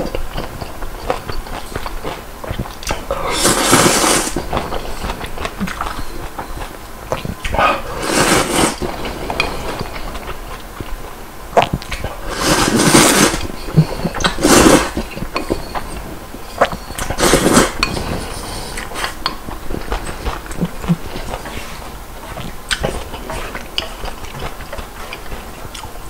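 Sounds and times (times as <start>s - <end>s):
person slurping noodles: 0.4s - 6.3s, 7.4s - 10.4s, 11.6s - 21.9s.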